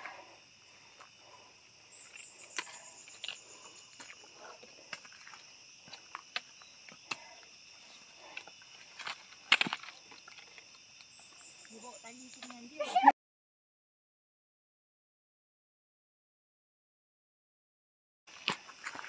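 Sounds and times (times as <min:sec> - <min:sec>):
insects droning: 0:00.0 - 0:13.1, 0:18.3 - 0:19.0.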